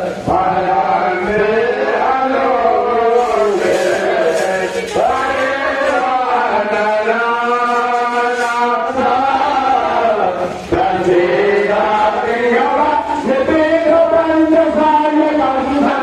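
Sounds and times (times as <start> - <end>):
voices chanting mantras: 0.0 - 16.0.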